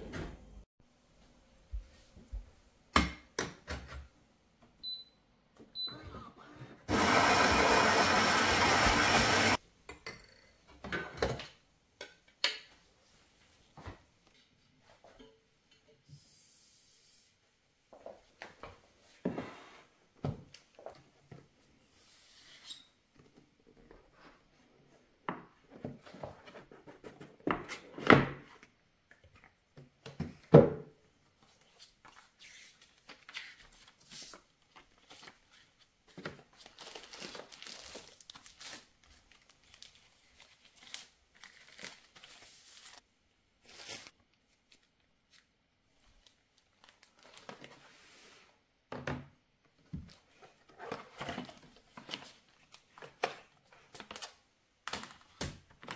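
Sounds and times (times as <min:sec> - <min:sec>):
plastic and paper rustling: 0:31.5 - 0:43.1, 0:43.7 - 0:48.2.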